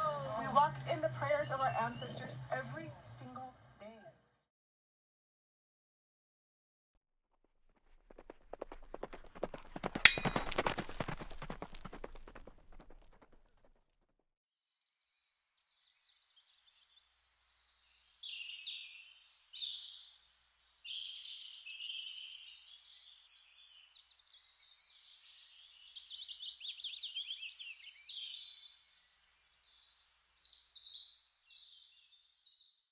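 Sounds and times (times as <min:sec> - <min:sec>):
songbirds singing: 0:15.0 - 0:32.9.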